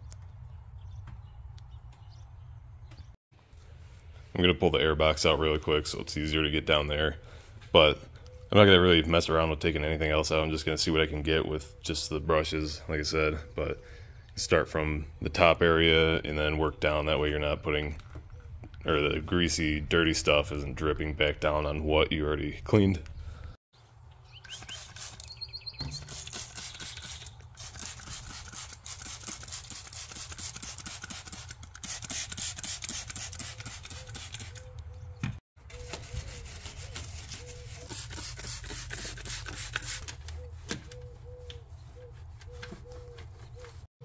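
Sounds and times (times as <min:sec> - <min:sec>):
cloth rubbing on engine parts: 0:23.8 - 0:34.6, 0:35.7 - 0:43.9.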